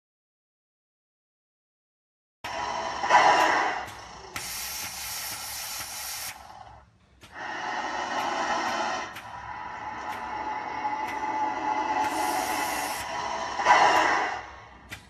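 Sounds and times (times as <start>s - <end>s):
snake hissing: 2.6s - 6.8s, 7.4s - 14.7s.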